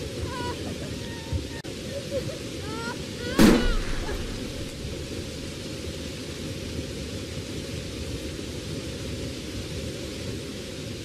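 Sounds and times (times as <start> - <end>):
rain hissing: 0.0 - 11.0
gunshot: 3.4 - 4.7.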